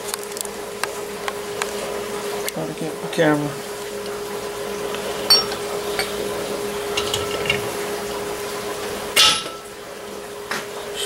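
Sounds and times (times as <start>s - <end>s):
steady hum: 0.5s - 10.2s
metal clinks and knocks: 5.3s - 6.2s, 6.9s - 7.7s.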